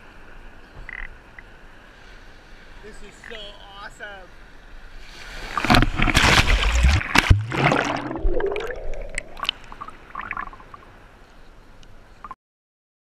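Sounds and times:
wave splashing: 0:04.8 - 0:11.2
underwater gurgling and rushing: 0:04.9 - 0:11.1
water sloshing and dripping: 0:05.4 - 0:10.8.

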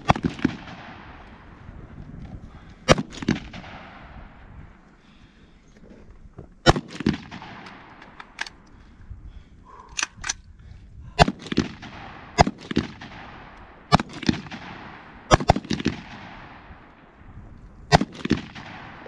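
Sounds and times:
rifle shots with echo: 0:00.0 - 0:01.6, 0:02.6 - 0:04.5, 0:06.6 - 0:08.6, 0:11.1 - 0:17.2, 0:17.9 - 0:19.0.

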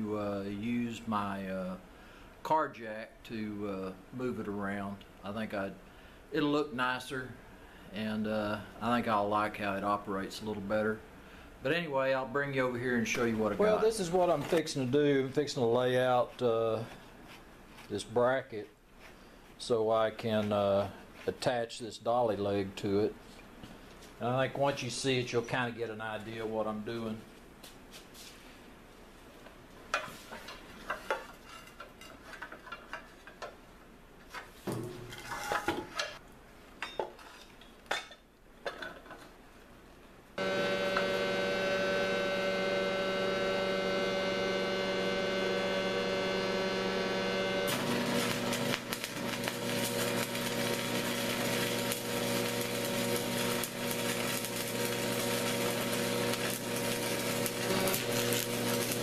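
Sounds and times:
steady electrical hum: 0:00.0 - 0:31.4, 0:39.3 - 0:59.0
welder arc crackling hiss: 0:40.4 - 0:59.0.

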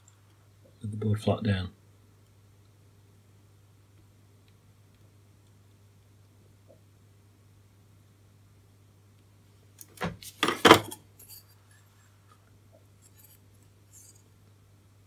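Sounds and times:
tools knocking on workbench: 0:10.4 - 0:11.0.

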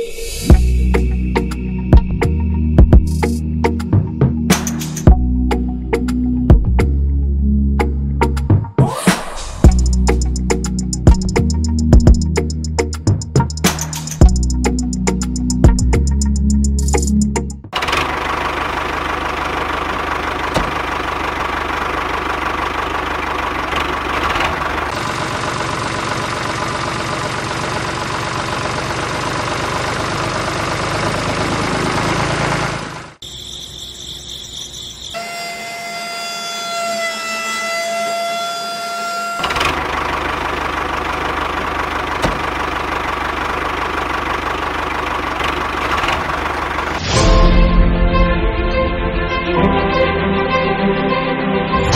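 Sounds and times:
toy tractor engine humming: 0:17.8 - 0:47.0.

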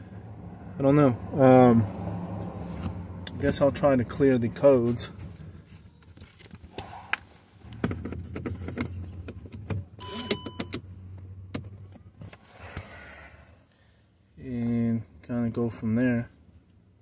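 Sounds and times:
handling clicks and knocks: 0:07.7 - 0:10.8
electronic beeps: 0:10.0 - 0:10.8.

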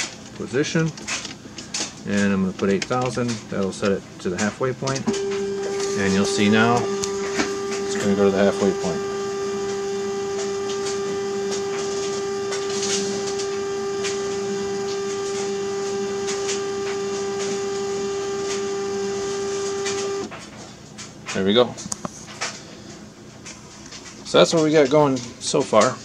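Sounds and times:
stepper motor whine: 0:05.0 - 0:20.3.

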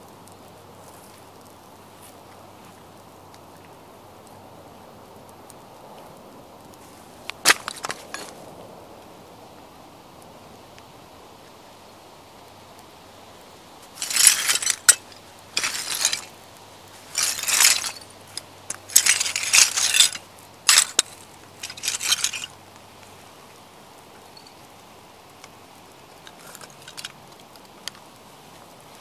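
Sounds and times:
boots crunching ceramic shards: 0:07.4 - 0:08.4, 0:13.8 - 0:16.4, 0:17.0 - 0:22.6, 0:26.3 - 0:27.2.

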